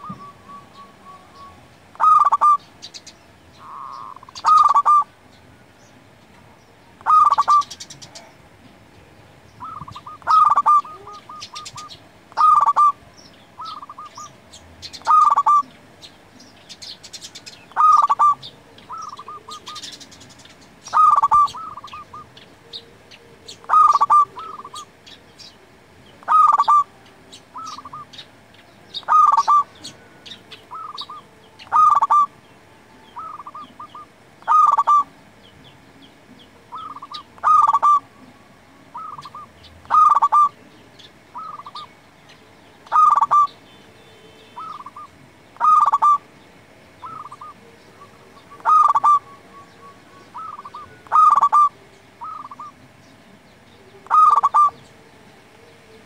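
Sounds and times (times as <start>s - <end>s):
dove cooing: 0.0s - 5.2s, 6.9s - 32.4s, 33.0s - 42.0s, 42.8s - 43.6s, 44.5s - 46.3s, 47.0s - 53.1s, 53.8s - 56.0s
small birds chirping: 0.0s - 56.0s.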